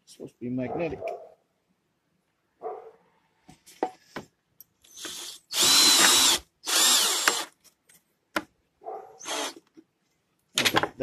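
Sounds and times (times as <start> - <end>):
cordless drill driving screw: 4.8 - 7.5, 9.2 - 9.7
drill click: 4.8 - 7.5, 9.2 - 9.7.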